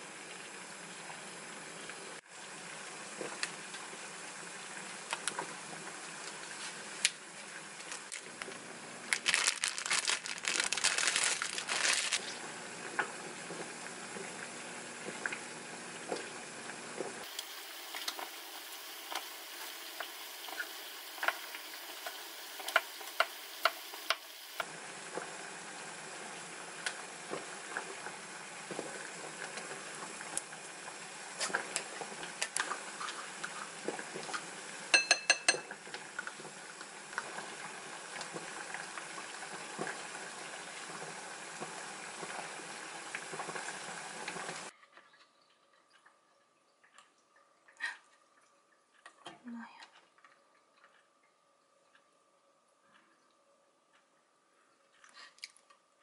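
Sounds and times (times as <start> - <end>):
plastic wrapper crinkling: 7.8 - 12.4
faint steady hiss: 17.2 - 24.8
spoon clinking on glass bowl: 34.9 - 35.7.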